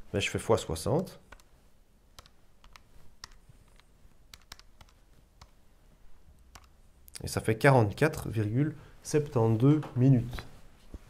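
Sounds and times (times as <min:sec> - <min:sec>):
calculator keys clicking: 0:02.2 - 0:05.6, 0:06.5 - 0:06.7.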